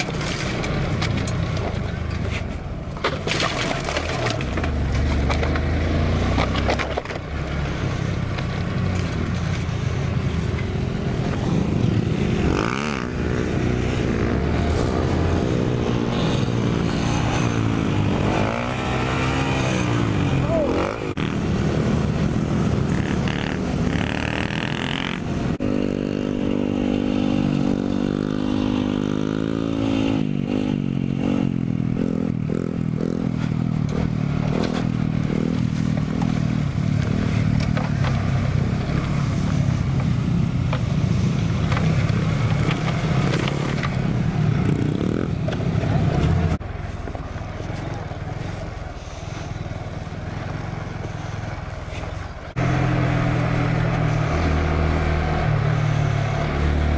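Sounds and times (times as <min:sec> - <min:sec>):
mini motorcycle engines revving: 0:11.0 - 0:46.6.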